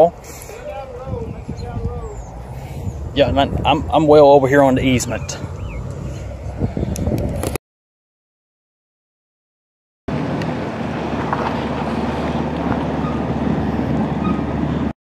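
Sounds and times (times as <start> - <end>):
wind buffeting microphone: 0.0 - 7.6.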